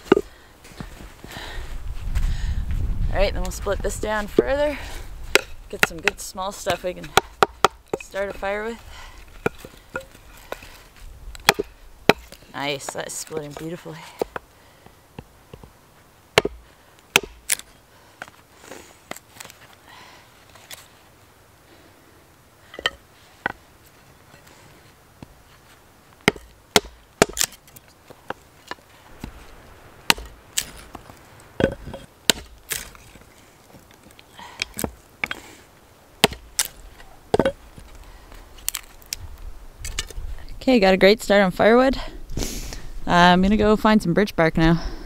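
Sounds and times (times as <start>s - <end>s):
hatchet chopping wood: 5.3s - 8.6s, 11.4s - 14.5s, 16.4s - 17.7s, 26.2s - 27.7s, 30.1s - 31.0s, 31.6s - 33.0s, 34.6s - 35.4s, 36.2s - 37.9s.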